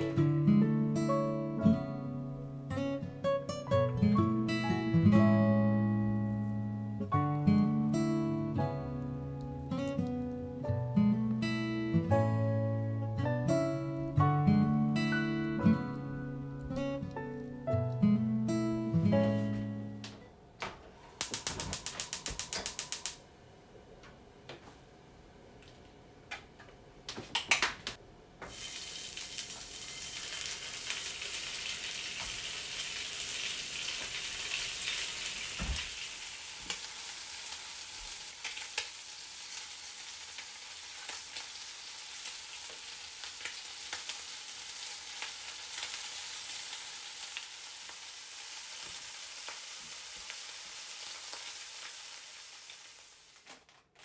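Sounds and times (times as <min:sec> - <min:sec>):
rapid igniter clicking: 0:21.2 - 0:23.2
bacon sizzling in pan: 0:28.4 - 0:53.5.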